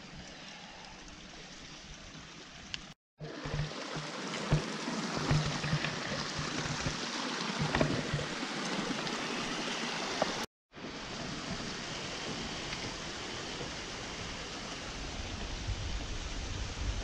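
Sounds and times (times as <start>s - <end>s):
stream splashing over rocks: 1.6s - 16.9s.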